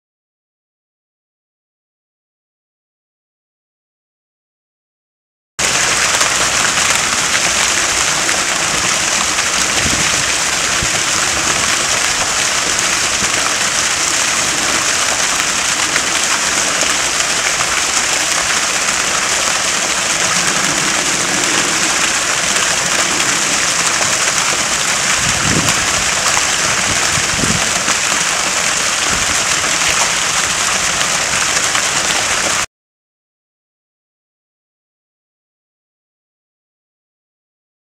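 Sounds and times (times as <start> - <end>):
fountain water splashing: 5.6 - 32.7.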